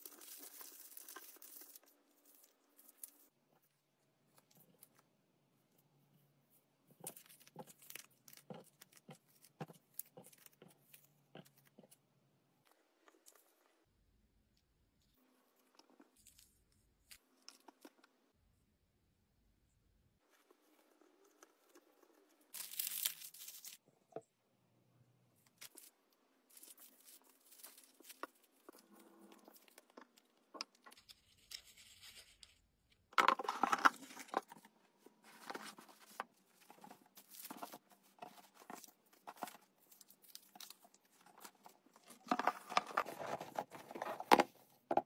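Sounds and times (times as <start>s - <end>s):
tissue paper rustling and crinkling: 22.6s - 23.8s.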